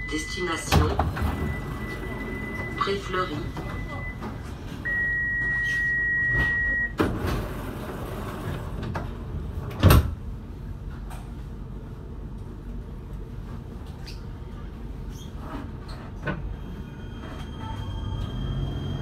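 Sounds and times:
door warning beep: 0.0s - 7.0s
tram doors shutting with a knock: 6.3s - 10.3s.

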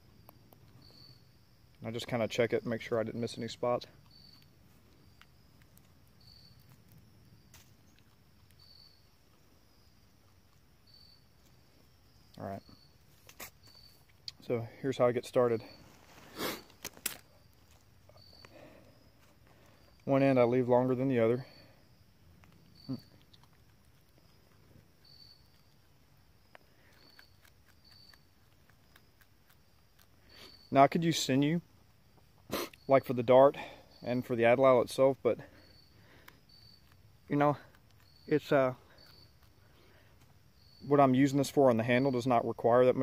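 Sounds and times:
faint insect hum: 0.0s - 43.0s
insect high chirp: 0.0s - 43.0s
vine fibre rustling while twisted: 15.8s - 17.8s.

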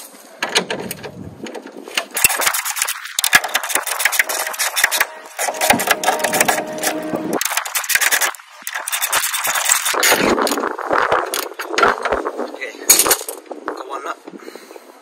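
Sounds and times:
short squeaking tone: 4.3s - 7.4s.

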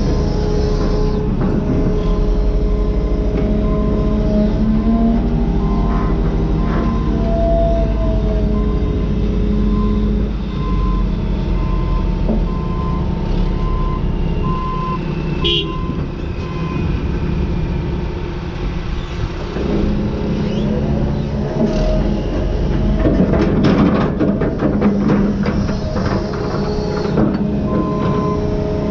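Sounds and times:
excavator diesel engine and hydraulics: 0.0s - 28.9s
backup alarm beeping: 11.6s - 16.9s.

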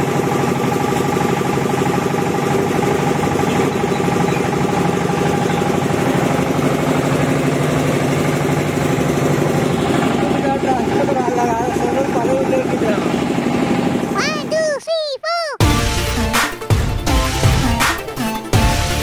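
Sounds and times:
small diesel engine running: 0.0s - 14.2s.

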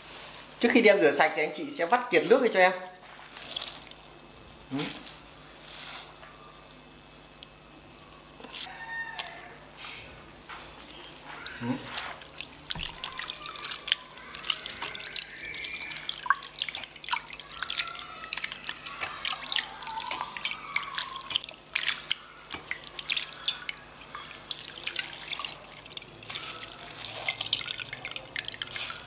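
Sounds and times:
water splashing in bowl: 10.8s - 29.0s.

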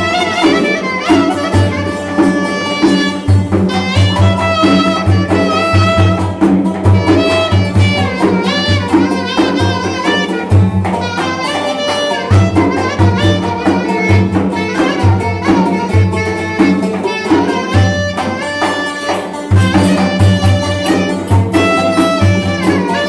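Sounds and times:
clarinet trilling melody: 0.0s - 23.0s
plucked lute: 0.0s - 23.0s
large drum beat: 1.2s - 11.5s, 19.5s - 23.0s.

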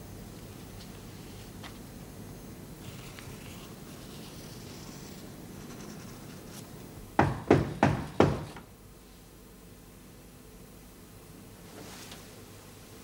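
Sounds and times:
knocks on a door: 7.2s - 8.7s.

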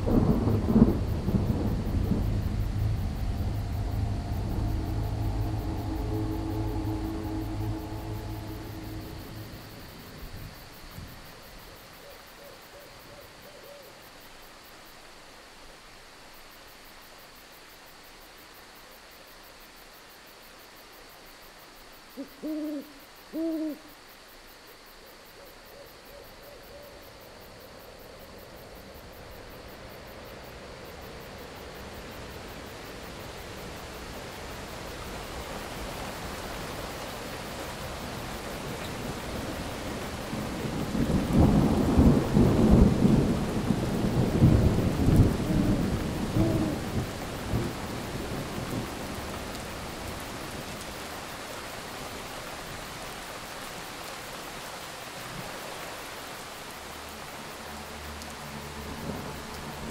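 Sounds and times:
rain hissing: 0.0s - 12.4s, 27.0s - 59.9s
owl hooting: 22.2s - 24.0s, 45.3s - 47.0s.

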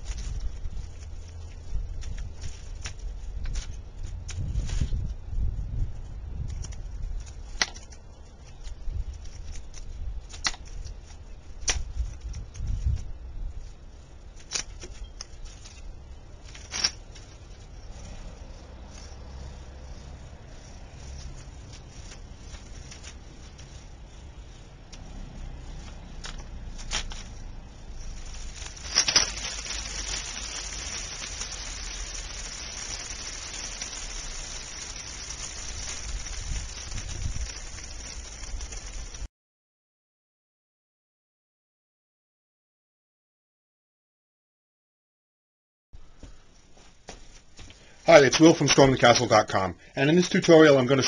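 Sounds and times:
light rustling: 6.4s - 39.3s
foam fizzing and hissing: 28.0s - 39.3s
soda spurting from bottle: 28.0s - 39.3s.

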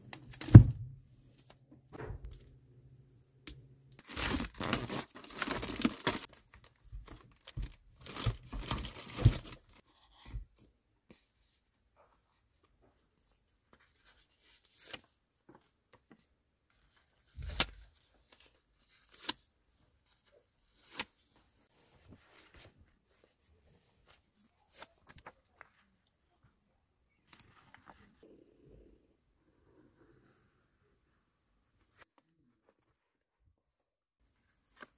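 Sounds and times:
plastic wrapping tearing and crinkling: 3.9s - 9.8s.

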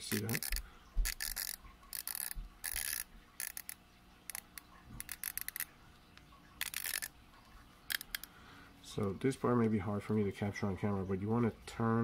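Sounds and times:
watch bezel ratchet clicking: 0.0s - 5.7s, 6.6s - 7.1s, 7.9s - 8.3s.

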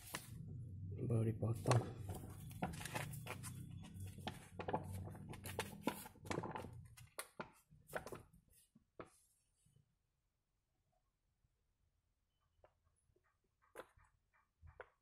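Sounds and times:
low hum: 0.0s - 4.1s.

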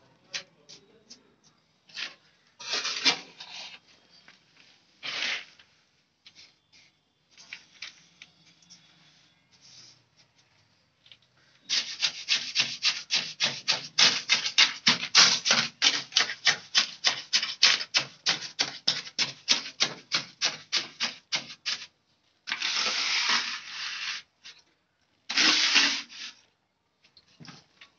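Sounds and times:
trowel scraping wet mortar: 2.6s - 3.8s, 11.7s - 21.9s, 22.5s - 24.3s, 25.3s - 26.4s.

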